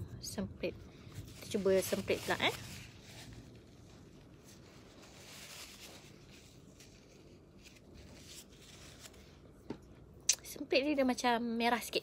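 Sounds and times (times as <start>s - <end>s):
paper tissue rustling: 1.0s - 9.6s.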